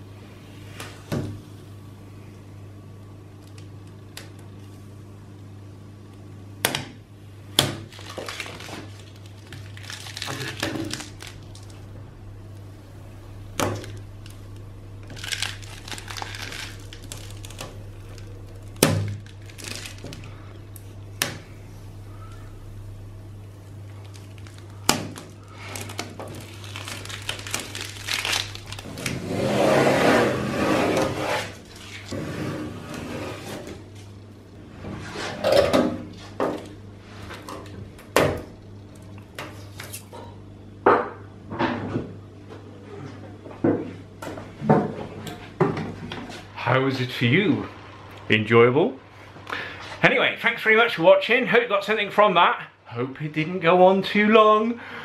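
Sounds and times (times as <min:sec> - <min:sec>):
masking tape tearing: 0:07.8 - 0:11.8, 0:15.0 - 0:20.4, 0:24.0 - 0:32.2
plastic film crinkling: 0:07.8 - 0:11.9, 0:13.5 - 0:22.6, 0:23.4 - 0:29.4, 0:31.5 - 0:32.2.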